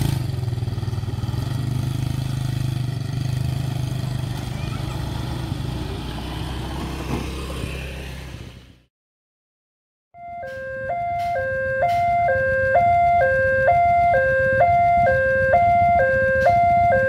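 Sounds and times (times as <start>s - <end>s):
two-tone crossing warning signal: 10.2s - 17.0s.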